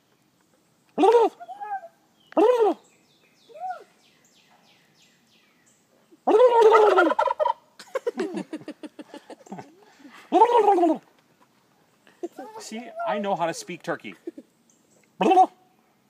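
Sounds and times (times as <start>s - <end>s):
turkey gobbling: 6.2s - 7.7s.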